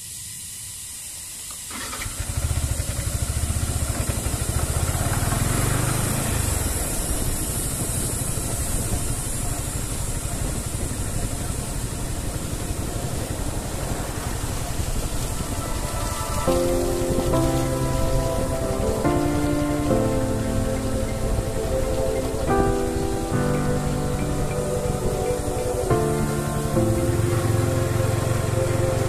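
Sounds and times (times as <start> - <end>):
constant high hiss: 0.0 - 29.0
motorcycle engine running: 1.8 - 16.0, 17.5 - 29.0.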